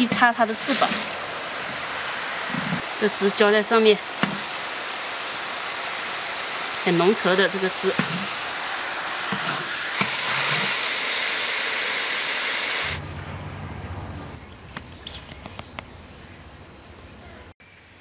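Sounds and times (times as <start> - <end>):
steady hiss: 0.0 - 13.0.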